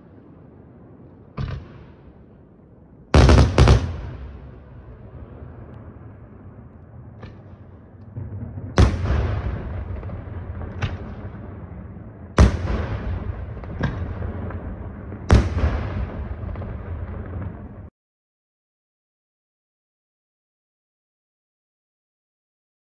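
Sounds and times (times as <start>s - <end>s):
fireworks bursting with echo: 0.0s - 17.9s.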